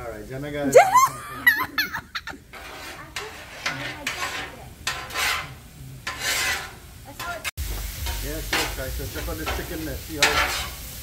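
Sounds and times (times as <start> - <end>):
metal spatulas scraping griddle: 2.4 - 11.0.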